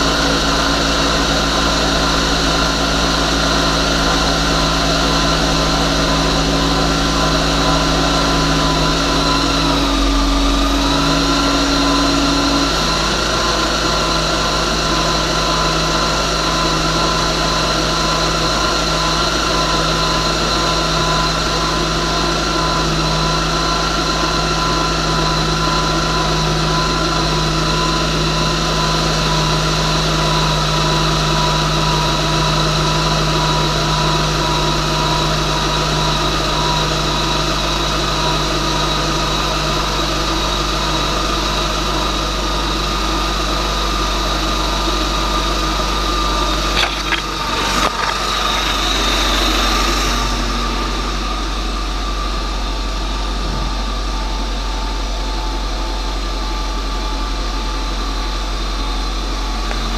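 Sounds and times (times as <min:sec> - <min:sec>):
car engine idling: 0:46.0 - 0:54.8, 0:59.4 - 0:59.9.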